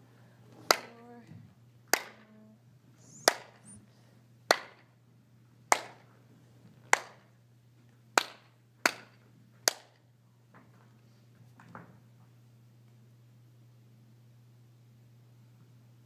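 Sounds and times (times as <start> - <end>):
sharp hand claps: 0.7 - 1.0, 1.9 - 2.2, 3.2 - 3.6, 4.5 - 4.9, 5.7 - 6.0, 6.9 - 7.3, 8.2 - 10.0.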